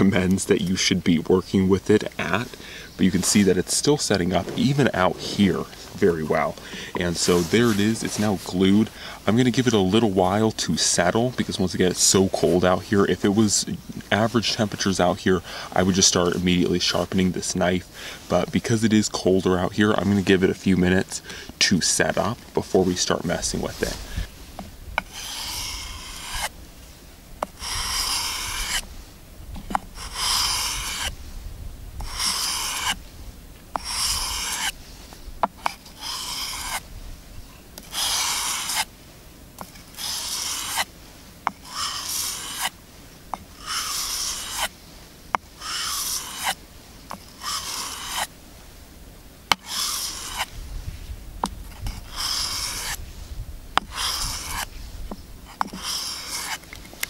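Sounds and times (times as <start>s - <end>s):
knife scraping on sandpaper: 1.8s - 17.6s, 21.8s - 24.3s, 25.0s - 26.5s, 27.4s - 28.9s, 29.9s - 31.2s, 32.0s - 33.0s, 33.7s - 34.8s, 35.6s - 36.8s, 37.8s - 38.9s, 39.6s - 40.9s, 41.5s - 42.8s, 43.5s - 44.7s, 45.6s - 48.3s, 49.5s - 50.6s, 51.7s - 53.0s, 53.8s - 54.8s, 55.4s - 57.0s.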